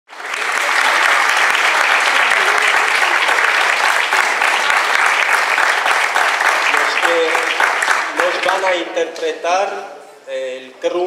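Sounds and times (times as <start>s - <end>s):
audience applauding: 0.1s - 8.9s.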